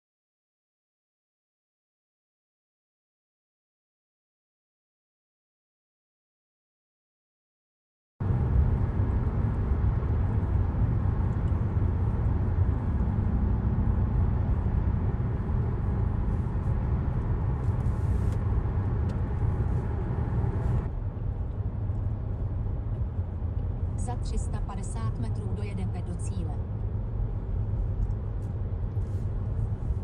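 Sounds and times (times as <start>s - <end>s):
car engine and road rumble: 8.2s - 30.0s.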